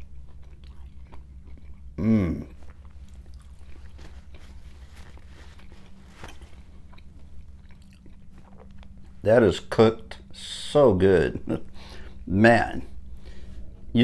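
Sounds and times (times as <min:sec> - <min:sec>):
person chewing: 0:00.0 - 0:09.2
steady low hum: 0:00.0 - 0:14.0
person appreciative vocal sound: 0:02.0 - 0:02.6.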